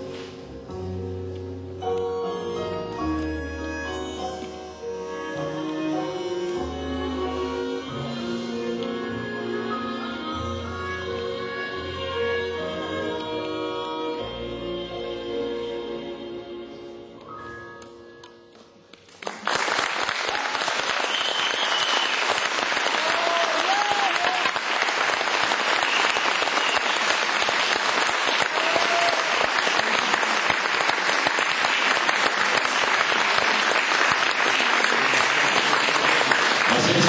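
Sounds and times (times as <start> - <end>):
audience applause: 19.1 - 37.0.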